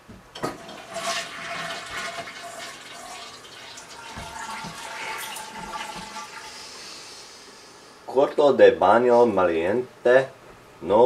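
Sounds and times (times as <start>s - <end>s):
toilet flushing: 0.4s - 8.0s.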